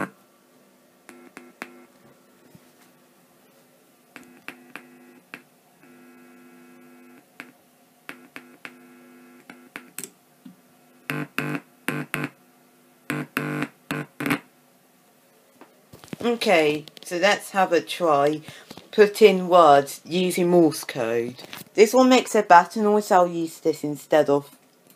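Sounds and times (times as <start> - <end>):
morse code buzzing tones: 1.1 - 2.0, 4.2 - 10.0, 10.8 - 12.4, 13.0 - 14.5.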